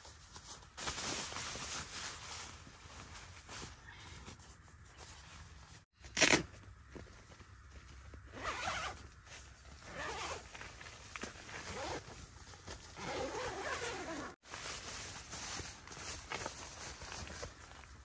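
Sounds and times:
zipper pulled: 8.3s - 9.0s, 9.9s - 10.5s, 11.5s - 12.0s, 13.0s - 14.4s.

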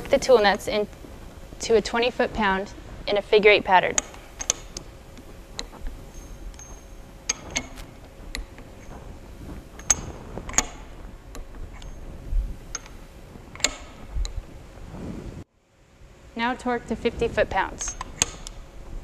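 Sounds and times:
torque wrench metallic clicks: 3.9s - 8.9s, 12.7s - 14.4s.

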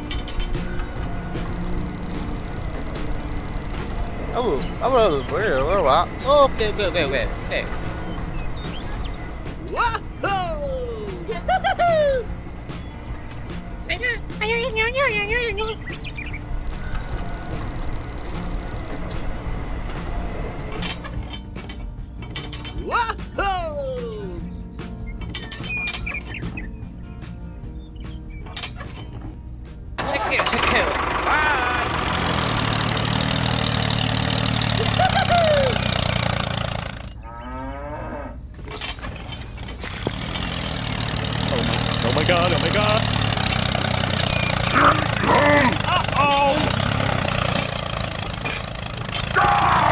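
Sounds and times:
engine idling: 0.6s - 7.1s, 16.6s - 19.1s, 30.0s - 37.2s, 39.8s - 49.9s
fast high electronic beeping: 1.4s - 4.1s, 16.6s - 19.0s
cow mooing: 37.2s - 38.5s
low engine rumble: 39.1s - 49.9s.

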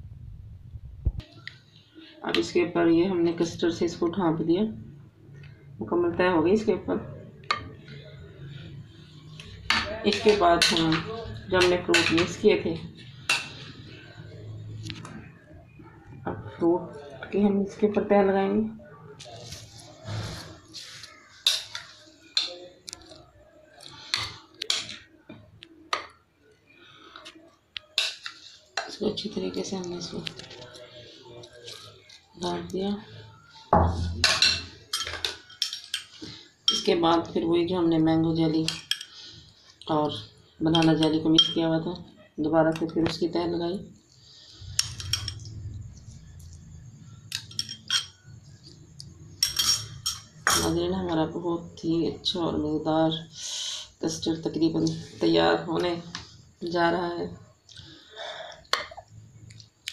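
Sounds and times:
metal spoon clinking on glass bowl: 34.2s - 37.0s, 40.7s - 41.7s, 44.8s - 45.6s, 47.3s - 48.4s, 49.3s - 50.8s.

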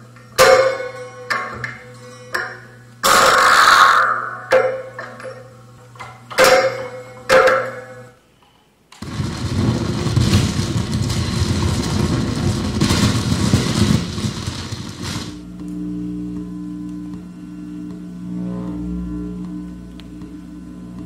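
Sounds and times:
rough buzzing noise: 0.0s - 8.2s, 9.0s - 21.0s
sharp ringing strikes: 0.4s - 3.3s, 6.3s - 8.1s
low hum: 9.0s - 21.0s
steady droning tone: 15.0s - 21.0s.

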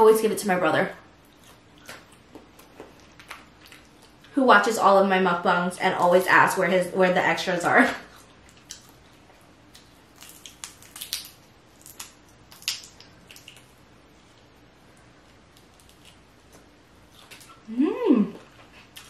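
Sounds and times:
crawfish shells cracking: 9.7s - 13.7s.

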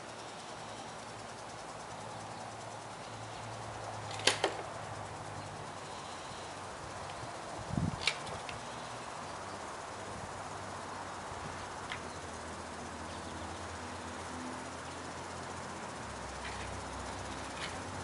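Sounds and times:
faint hiss: 0.0s - 18.0s
sharp clicks: 4.0s - 4.8s, 7.9s - 8.6s, 11.8s - 12.1s.

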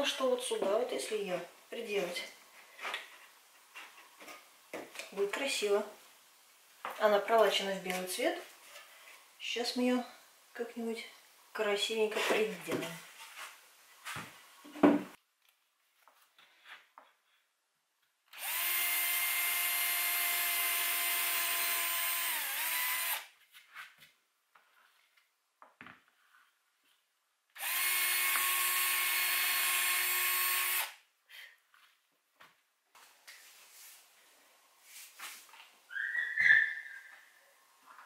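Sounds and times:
cordless drill boring into wood: 18.3s - 23.3s, 27.6s - 31.0s.

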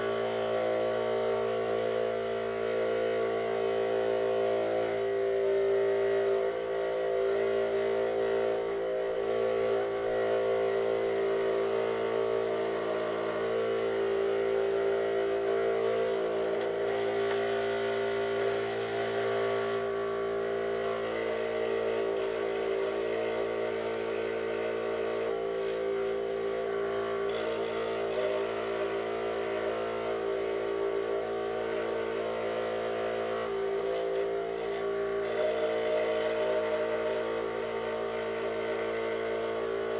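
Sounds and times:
scroll saw cutting plywood: 31.6s - 39.9s.

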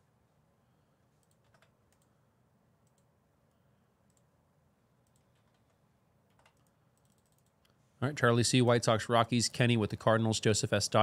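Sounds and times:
computer mouse clicks: 1.2s - 2.2s, 2.8s - 4.3s, 5.0s - 7.8s.

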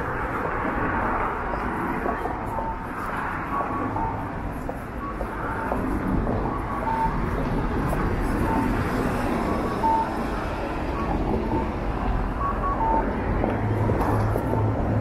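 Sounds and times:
cars passing: 0.0s - 15.0s
short electronic beeps: 2.5s - 4.3s, 4.9s - 7.4s, 8.4s - 8.9s, 9.7s - 10.2s, 10.9s - 13.2s.

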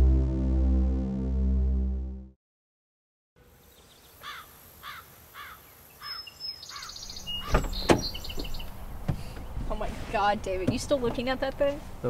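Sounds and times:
bird chirping: 3.7s - 9.6s
higher bird calls: 3.8s - 8.8s.

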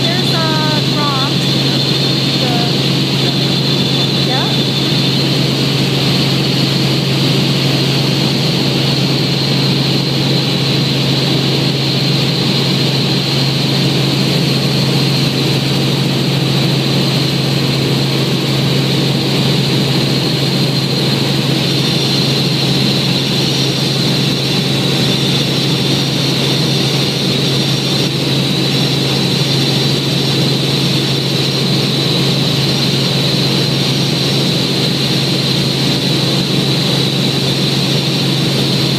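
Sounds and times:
high whine: 0.0s - 6.6s
helicopter rotor and engine drone: 0.0s - 38.9s.

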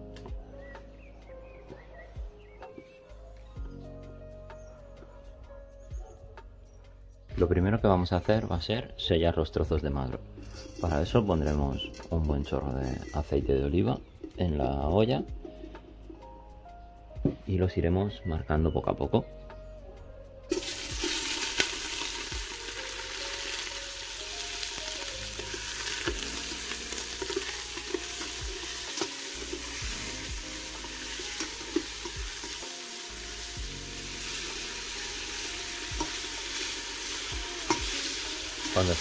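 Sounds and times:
metal skimmer scraping pot: 10.4s - 13.2s, 25.4s - 32.6s
meat sizzling in hot oil: 20.5s - 39.0s.

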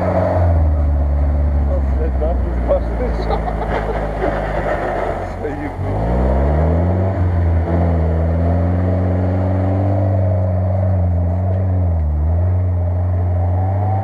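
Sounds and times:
engine pulling under load: 0.0s - 14.0s.

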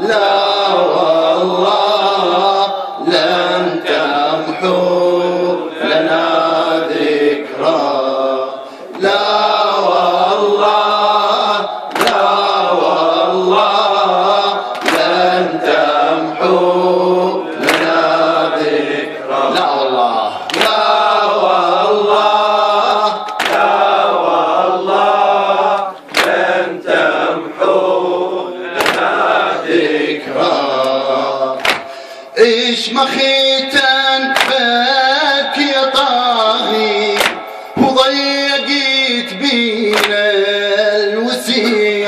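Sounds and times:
man chanting into a microphone: 0.0s - 26.0s, 28.1s - 42.0s
chest-beating slaps: 11.9s - 12.4s, 14.7s - 15.2s, 17.6s - 18.0s, 20.5s - 20.9s, 23.2s - 23.8s, 26.1s - 26.4s, 28.8s - 29.2s, 31.6s - 32.0s, 34.4s - 34.7s, 37.1s - 37.5s, 39.9s - 40.2s.

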